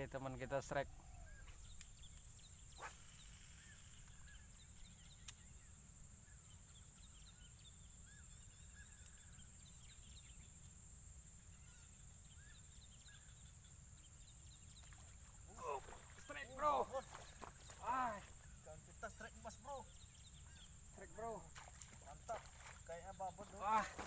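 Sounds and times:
high insect drone: 0.0s - 24.0s
bird chirps: 0.8s - 10.7s, 11.4s - 24.0s
faint clicks: 5.2s - 5.5s.

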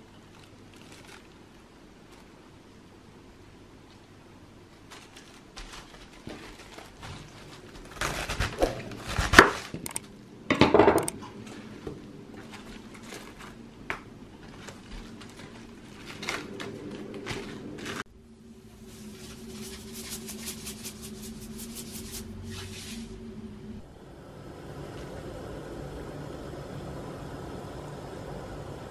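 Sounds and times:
cabbage leaves rustling: 0.0s - 2.4s, 4.7s - 9.8s, 12.4s - 13.6s, 14.4s - 18.1s, 18.7s - 23.2s
knife crunching through cabbage: 5.8s - 10.0s.

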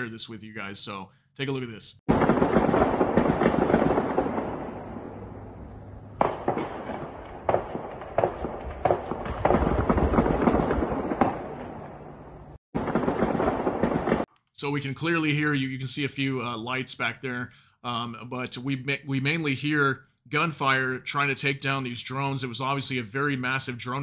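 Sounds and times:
distant rapid gunfire crackle: 2.1s - 14.3s.

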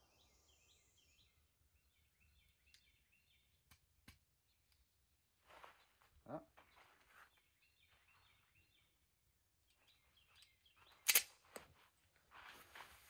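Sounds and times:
birds chirping: 0.0s - 13.0s
pistol faint clicks: 9.6s - 11.7s.

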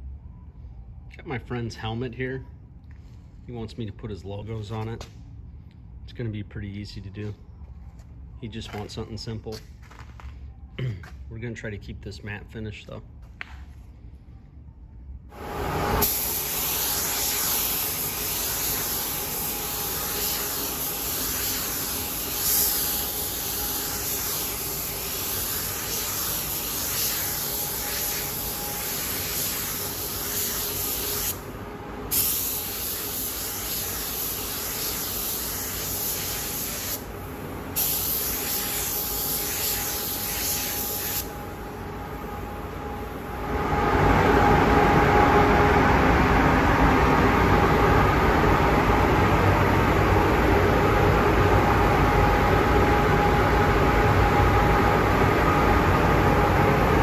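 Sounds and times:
low steady hum: 0.0s - 57.0s
paint spray gun hissing: 16.0s - 31.4s, 32.1s - 41.4s.

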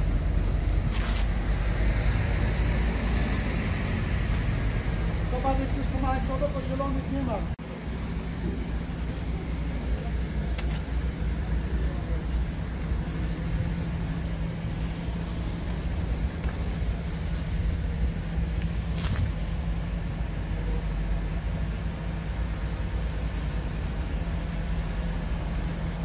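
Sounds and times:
diesel engine idling: 0.0s - 26.0s.

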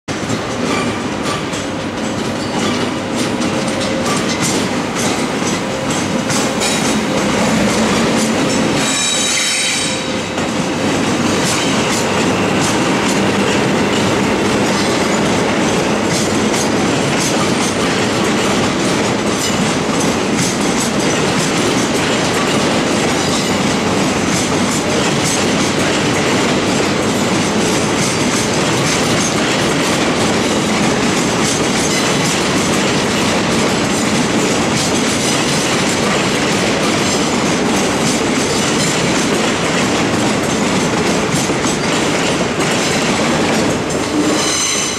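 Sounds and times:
train wheels clattering over points: 0.1s - 44.9s
brief high squeal: 44.2s - 44.9s.

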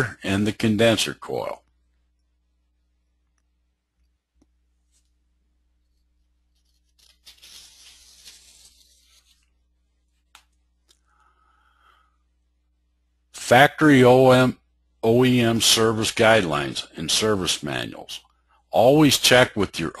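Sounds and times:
soft clicks: 3.2s - 5.2s.

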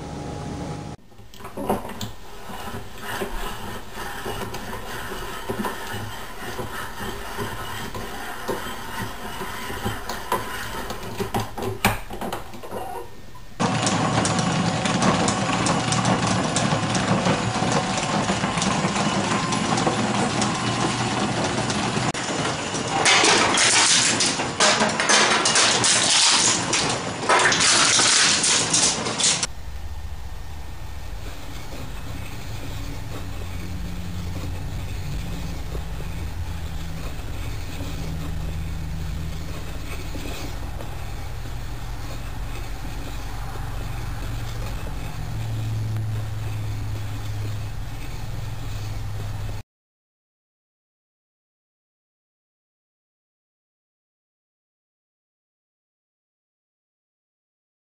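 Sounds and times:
wooden gears whirring and clicking: 1.2s - 13.0s, 13.6s - 29.6s, 31.0s - 49.6s.

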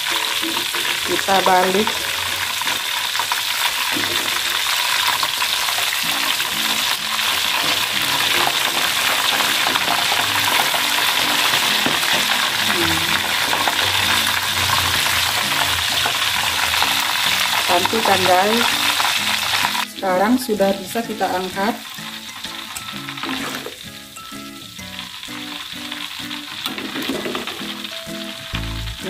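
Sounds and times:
chicken deep-frying in oil: 0.0s - 29.0s.

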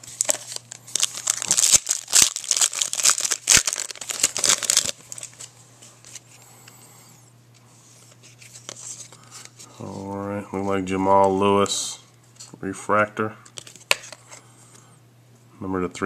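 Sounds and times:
foil wrapper crinkling and tearing: 0.0s - 5.5s.

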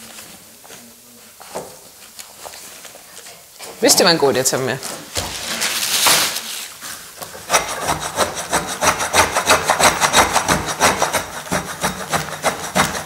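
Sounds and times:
scraping strokes on hide: 5.4s - 13.0s.

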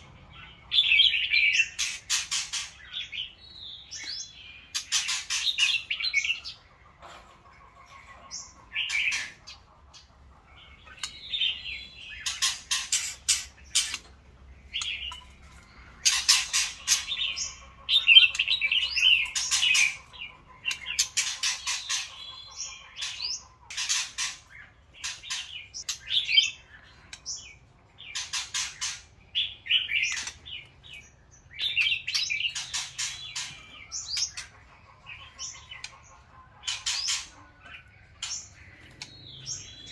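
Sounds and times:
birds singing whistled phrases: 10.6s - 39.9s.

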